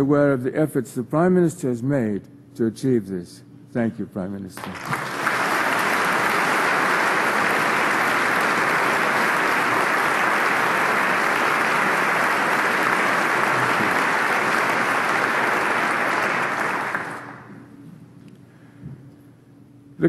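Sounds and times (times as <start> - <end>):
audience applauding: 4.6 - 17.6.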